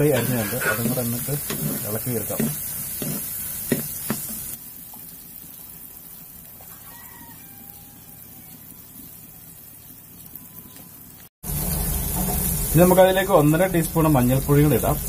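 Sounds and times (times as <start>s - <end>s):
vegetables sizzling in oil: 0.0s - 15.0s
rooster crowing faintly: 6.6s - 9.0s.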